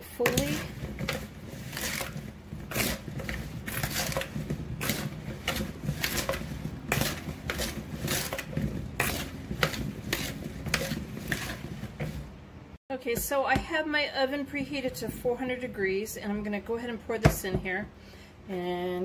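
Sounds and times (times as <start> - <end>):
spoon scraping plastic bowl: 0.0 - 12.4.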